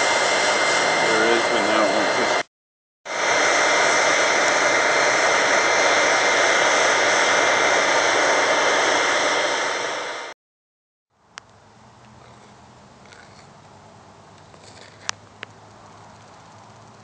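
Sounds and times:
faint steady whine: 0.0 - 2.5
furnace fire roaring: 0.0 - 2.5, 3.1 - 10.4, 11.4 - 17.0.

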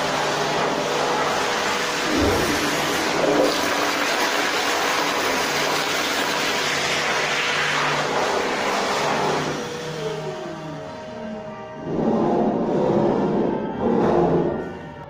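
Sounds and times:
toilet flushing: 0.0 - 10.7.

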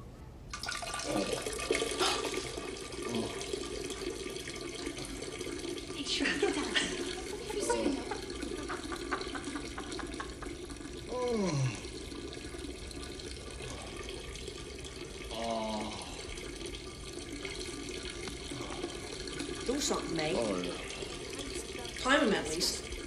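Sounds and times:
urine stream into toilet: 0.5 - 23.0
man groaning: 1.1 - 2.3, 3.0 - 3.4, 11.1 - 11.9, 15.3 - 16.3.

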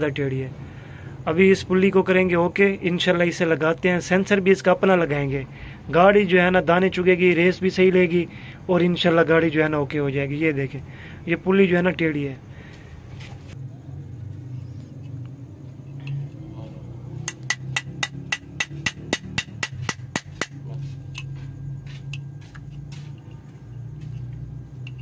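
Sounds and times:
metal tapping on metal: 17.1 - 21.4.

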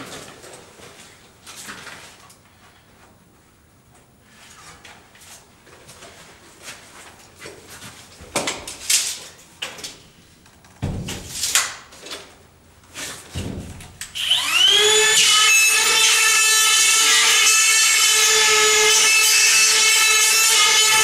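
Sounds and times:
thump: 10.8 - 11.4, 13.3 - 14.0
knocks and scrapes: 10.8 - 15.1
power drill whining: 14.0 - 21.0.

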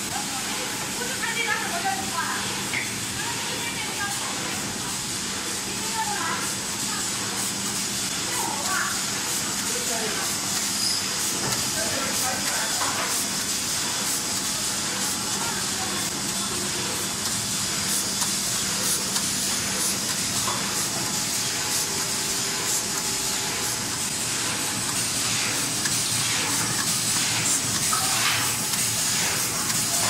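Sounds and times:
machine hissing: 0.2 - 30.0.

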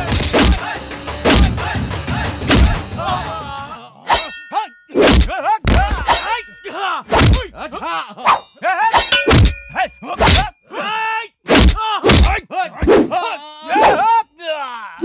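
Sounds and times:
punch and kick whacks: 0.0 - 1.7, 2.5 - 2.8, 5.0 - 6.2, 7.1 - 7.5, 9.3 - 9.6, 10.2 - 10.5, 11.5 - 13.1
grunts and cries of pain: 2.6 - 4.4, 11.6 - 14.1.

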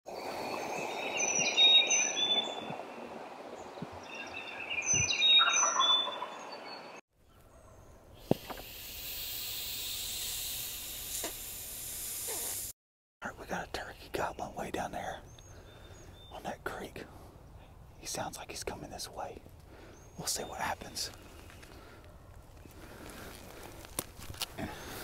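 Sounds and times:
songbirds chirping: 0.2 - 8.2, 13.2 - 23.9
turkey gobbling: 5.2 - 6.5
air hissing: 8.2 - 12.8.

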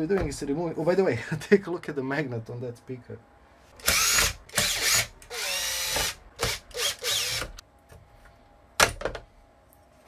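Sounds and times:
cordless drill whining: 3.8 - 7.6.

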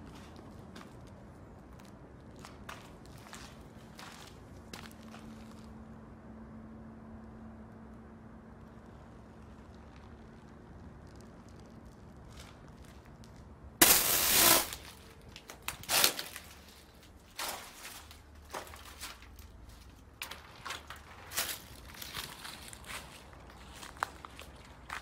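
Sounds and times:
footsteps crunching on dry grass: 16.0 - 25.0.

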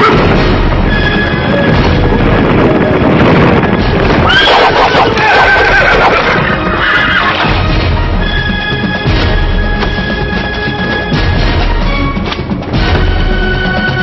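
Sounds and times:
dramatic background music: 0.0 - 14.0
horse whinnying: 4.2 - 7.6.

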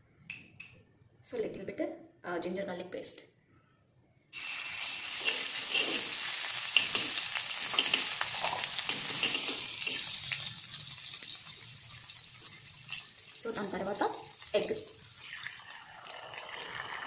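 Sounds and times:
steel spoon scraping a pan: 4.4 - 10.5
paste sizzling in hot oil: 4.4 - 17.0.

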